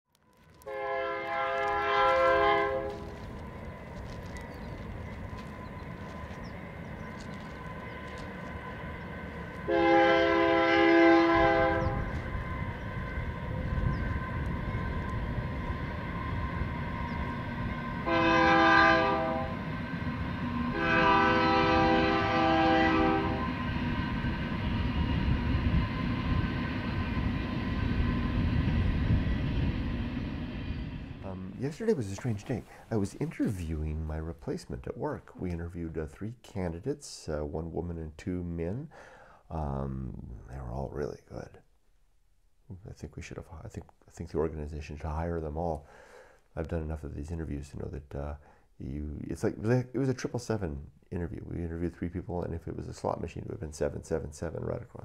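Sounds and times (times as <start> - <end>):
train rumbling: 0.3 - 36.2
train horn blasts: 0.6 - 3.3, 9.6 - 23.9.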